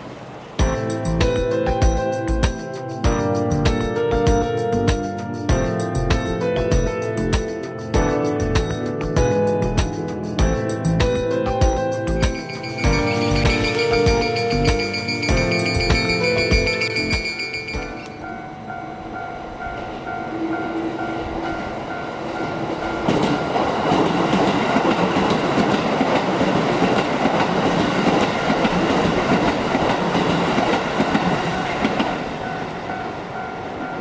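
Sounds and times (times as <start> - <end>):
level crossing warning bell dinging: 12.2 - 23.9, 31.2 - 34.0.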